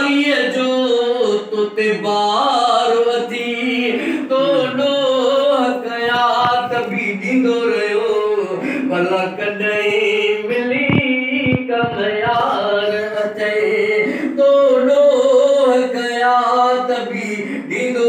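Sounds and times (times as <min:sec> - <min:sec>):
man singing unaccompanied: 0:00.0 - 0:18.0.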